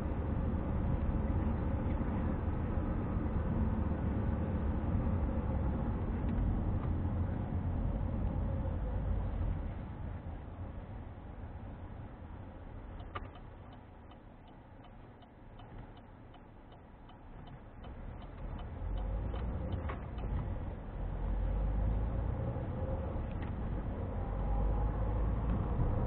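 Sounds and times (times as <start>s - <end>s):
car engine and road noise: 0.0s - 26.0s
turn signal relay ticking: 13.0s - 20.4s.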